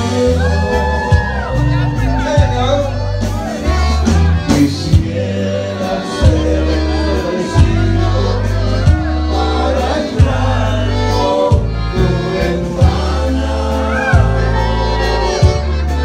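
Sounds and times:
live dance band playing: 0.0s - 16.0s
person singing: 4.4s - 16.0s.

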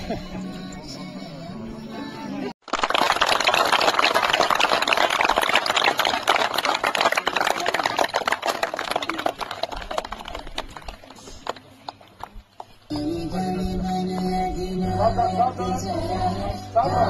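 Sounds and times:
crowd clapping: 2.6s - 12.7s.

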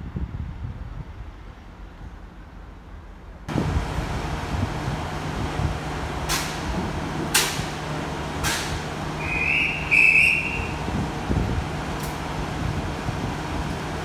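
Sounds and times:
train idling hum: 0.0s - 14.0s
high-pitched whistle: 9.2s - 10.8s.

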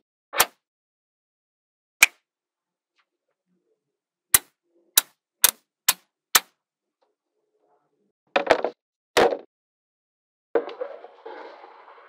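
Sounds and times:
magnetic balls snapping together: 2.0s - 2.2s, 4.3s - 6.5s.

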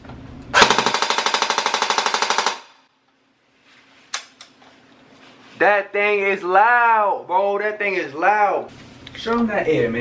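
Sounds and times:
airsoft gun full-auto burst: 0.6s - 2.9s.

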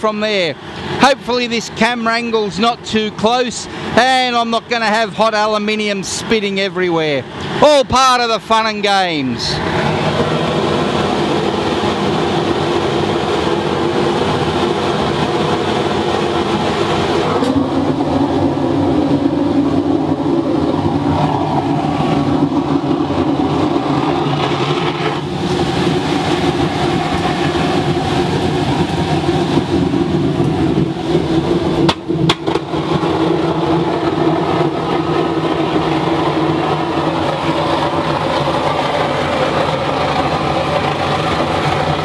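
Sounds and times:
burner flame roaring: 0.0s - 42.0s
sharp knocks: 31.8s - 32.7s.

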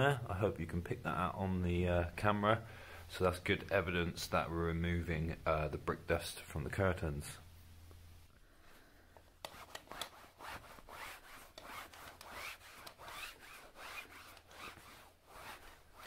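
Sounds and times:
curtain fabric being rubbed: 9.4s - 16.0s.

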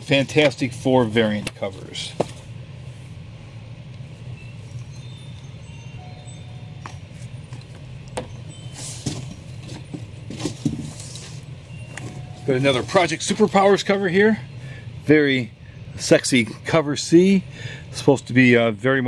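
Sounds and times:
steady low hum: 0.0s - 19.0s
paper and cardboard rustling: 8.7s - 13.9s.

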